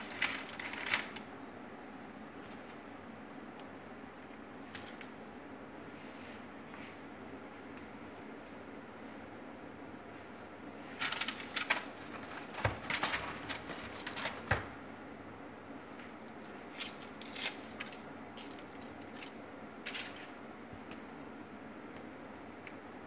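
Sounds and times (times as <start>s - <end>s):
foil wrappers crinkling: 0.0s - 1.2s, 11.0s - 14.7s, 16.7s - 20.4s.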